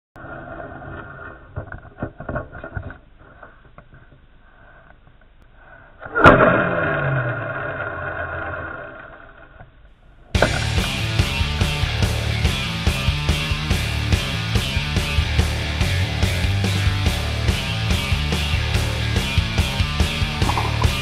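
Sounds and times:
music: 10.4 - 21.0.

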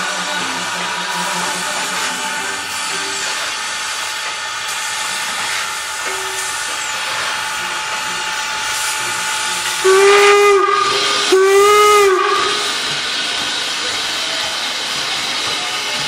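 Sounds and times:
steam hissing: 0.0 - 16.0
steam whistle blasts: 8.6 - 12.9.

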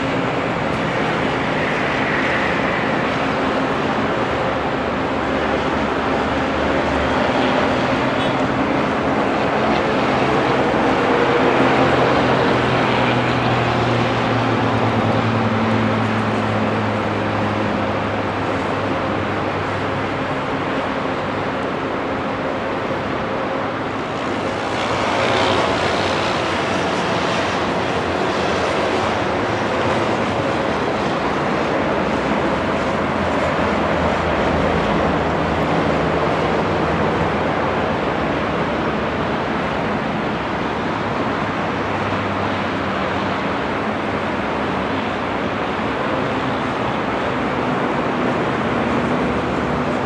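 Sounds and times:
road traffic passing: 0.0 - 50.0
small aircraft engines at takeoff: 0.0 - 50.0.

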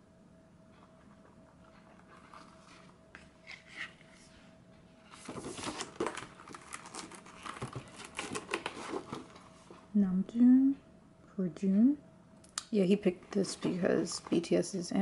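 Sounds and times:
stiff paper rustling and crinkling: 5.1 - 9.8.

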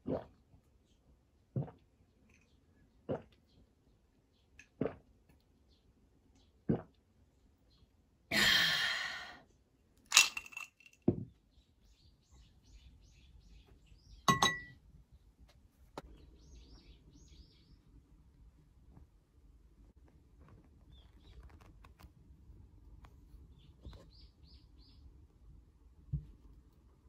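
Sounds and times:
small birds chirping: 11.2 - 18.0, 20.4 - 22.2, 22.8 - 25.3
glass lid clinking on glass jar: 14.3 - 14.8.

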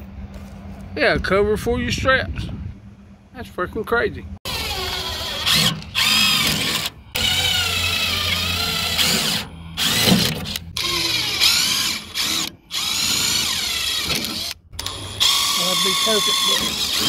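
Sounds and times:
drill whining through metal: 4.4 - 17.0.

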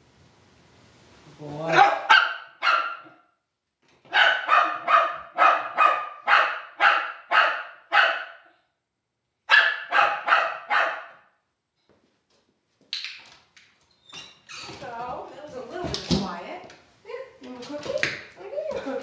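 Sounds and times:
dog barking in a crate: 1.7 - 3.3, 4.0 - 8.5, 9.5 - 11.4.

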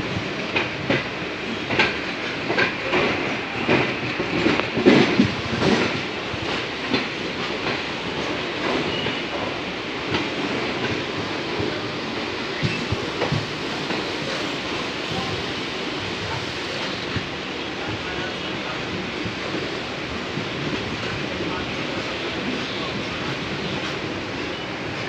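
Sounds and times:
train rumble: 0.0 - 25.0
train wheels clattering over joints: 0.4 - 17.4.

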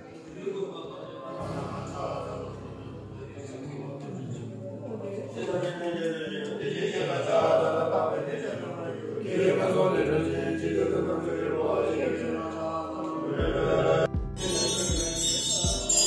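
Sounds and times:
men chanting in low drone: 0.4 - 16.0
deep hum: 1.4 - 5.7.

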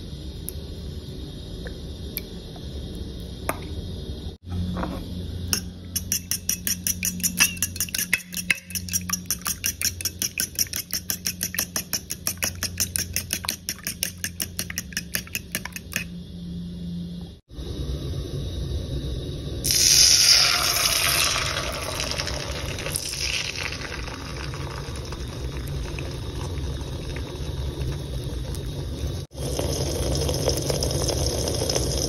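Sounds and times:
steady low hum: 0.0 - 30.7
fork clinking against bowl: 5.5 - 16.1.

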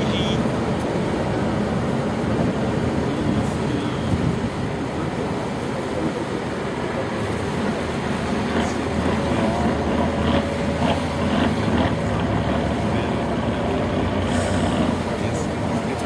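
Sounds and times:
diesel engine rumbling under load: 0.0 - 16.0.

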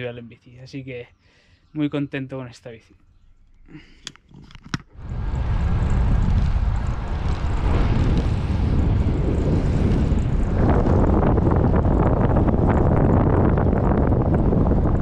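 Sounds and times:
wind rushing over microphone: 5.0 - 15.0.

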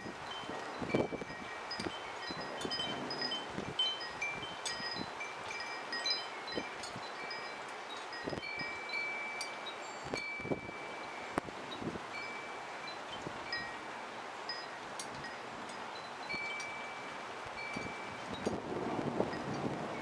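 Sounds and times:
wind buffeting microphone: 0.0 - 7.4, 14.6 - 20.0
wind chimes ringing: 0.0 - 18.6, 19.2 - 20.0.

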